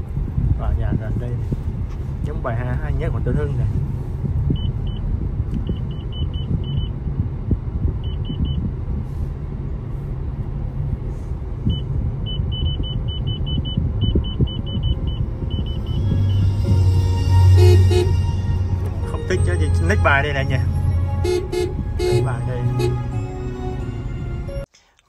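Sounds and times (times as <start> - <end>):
car road and engine rumble: 0.0 - 25.0
short high-pitched beeps: 11.7 - 18.7.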